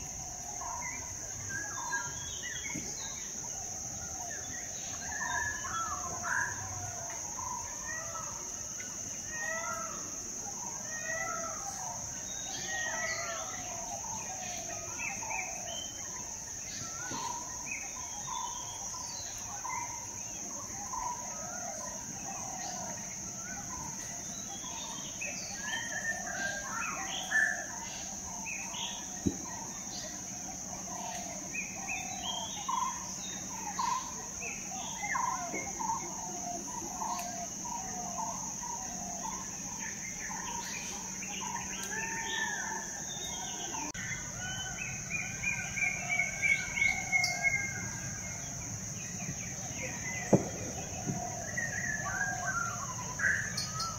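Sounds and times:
birds calling and chirping: 0.0 - 53.9.

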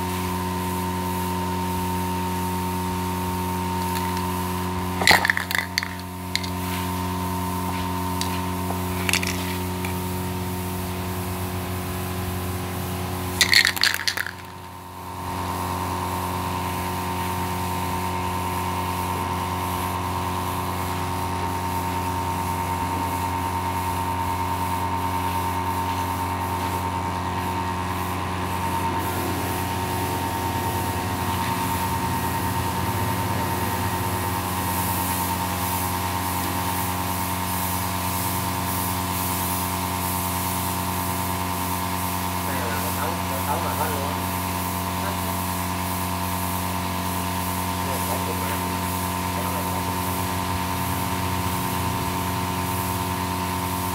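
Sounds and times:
spray can rattling: 3.4 - 10.2, 13.3 - 15.0.

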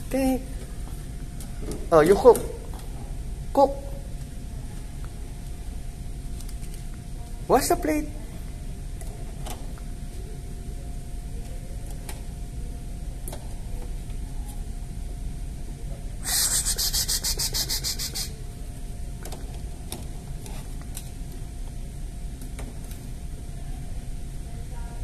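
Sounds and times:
toy faucet water hiss: 16.2 - 18.3.

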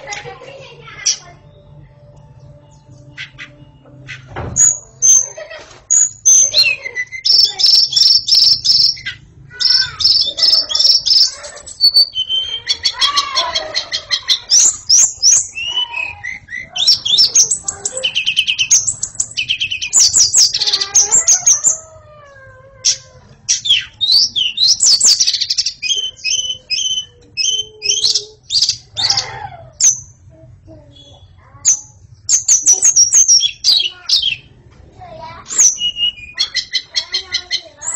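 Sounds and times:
bird singing whistled phrases: 6.0 - 13.0, 23.7 - 28.8, 35.5 - 37.0.

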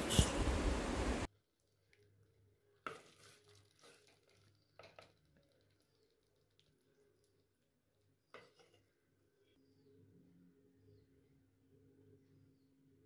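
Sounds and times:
spoon scraping food from clay pot: 0.0 - 0.5.

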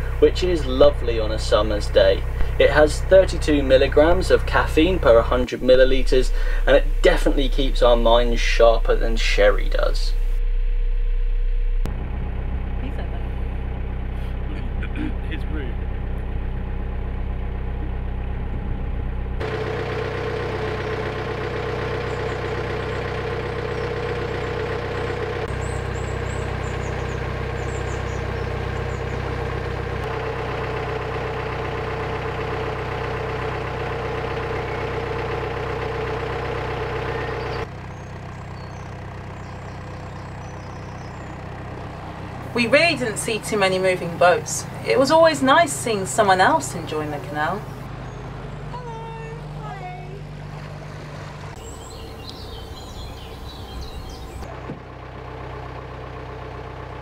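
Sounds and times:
boat engine running: 0.0 - 57.0.

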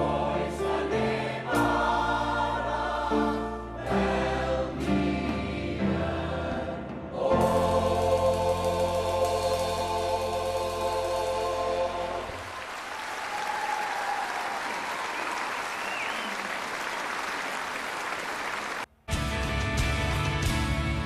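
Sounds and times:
choir and piano chord: 0.0 - 12.6
audience applause: 12.2 - 18.9.

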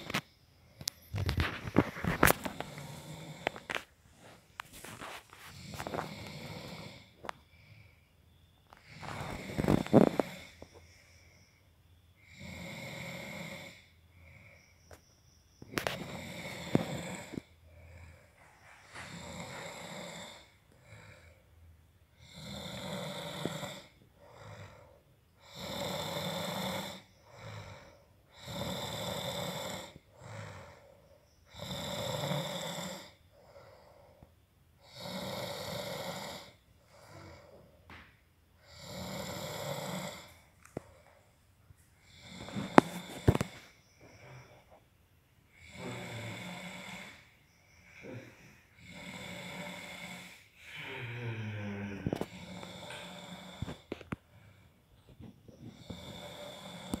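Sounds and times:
man snoring: 1.4 - 3.8, 5.0 - 7.8, 8.8 - 10.8, 12.2 - 14.0, 15.7 - 18.1, 18.9 - 21.4, 22.2 - 34.1, 34.8 - 37.7, 38.6 - 40.5, 42.0 - 44.7, 45.5 - 54.1, 55.4 - 57.0.

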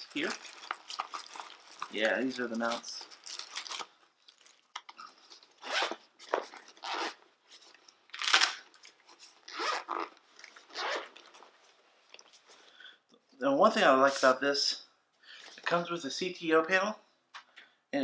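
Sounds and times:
plastic packaging crinkling: 0.0 - 12.5.

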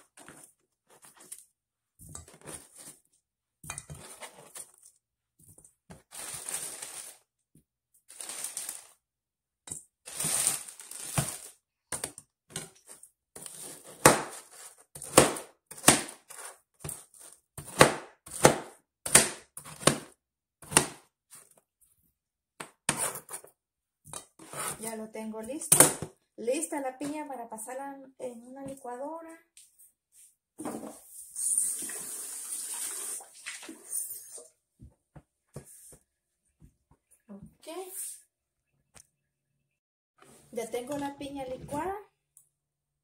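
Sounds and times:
knife cutting on plastic board: 22.6 - 23.5, 24.3 - 24.8.

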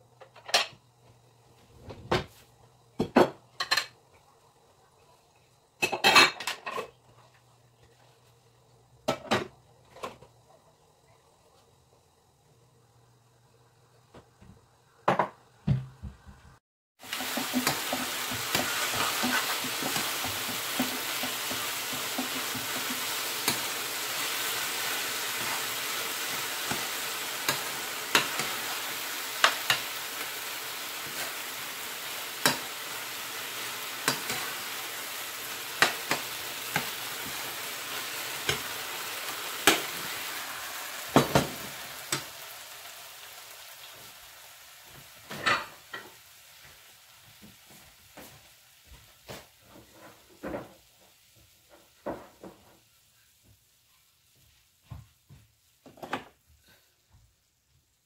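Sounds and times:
food sizzling in frying pan: 17.0 - 53.6.

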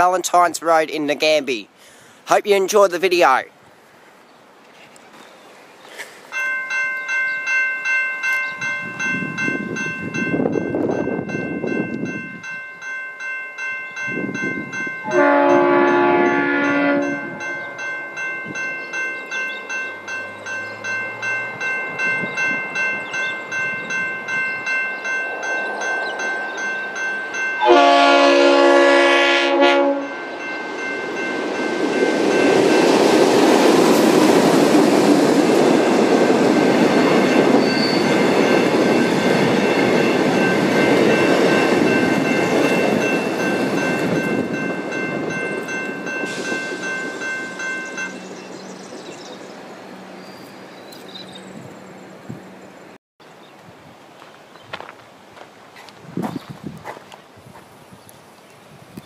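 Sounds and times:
level crossing bell ringing: 6.3 - 33.2, 36.6 - 48.6
train running over crossing: 6.3 - 53.0
train horn blasts: 15.0 - 17.5, 27.6 - 30.2.

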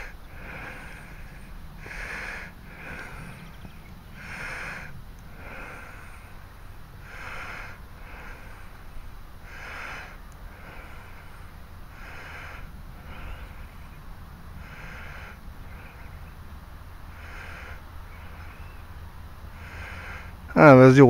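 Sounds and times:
person breathing: 0.0 - 18.8, 19.4 - 20.6
low steady rumble: 0.0 - 21.0.

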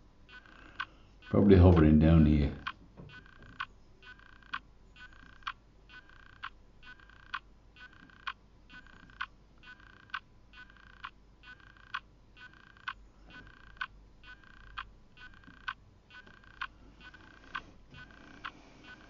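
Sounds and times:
regular ticking with buzzing tone: 0.0 - 19.0.

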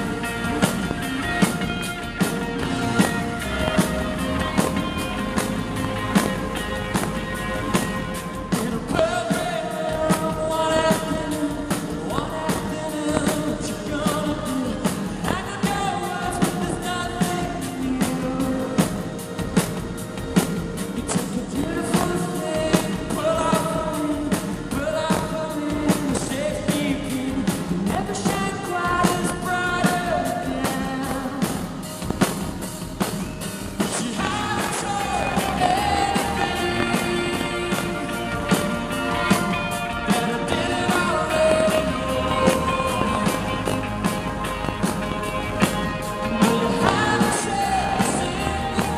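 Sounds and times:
man singing: 0.0 - 19.9, 20.6 - 32.2, 33.8 - 48.9
live rock band playing: 0.0 - 48.9.

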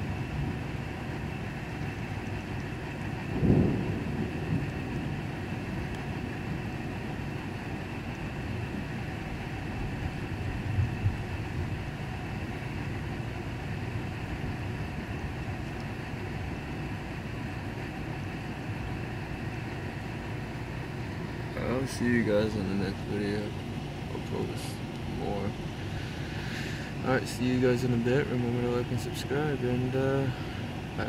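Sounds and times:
steady background noise: 0.0 - 31.0
thunder rumbling: 2.8 - 17.0.

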